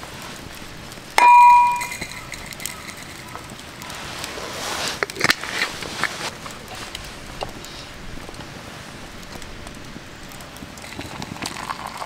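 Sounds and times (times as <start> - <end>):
metallic clang: 1.2 - 3.4
rustling handling noise: 1.2 - 8.6.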